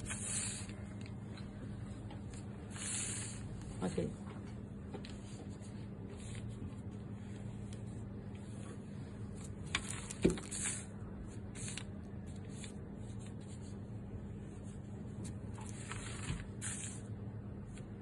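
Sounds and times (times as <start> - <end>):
brush swishing across paper: 0.0 - 0.8, 2.7 - 3.5, 15.6 - 17.1
room hum: 0.0 - 18.0.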